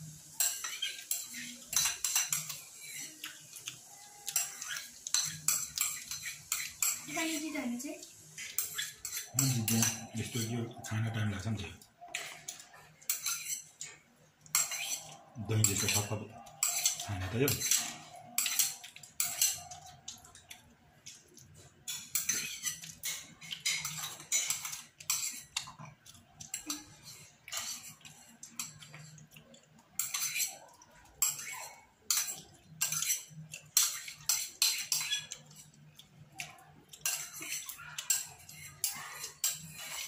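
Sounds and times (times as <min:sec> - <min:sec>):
metal spoon scraping ceramic bowl: 0:04.3 - 0:07.1, 0:08.4 - 0:13.9, 0:14.5 - 0:19.9, 0:21.9 - 0:25.7, 0:30.0 - 0:30.6, 0:31.2 - 0:35.6, 0:37.0 - 0:40.0.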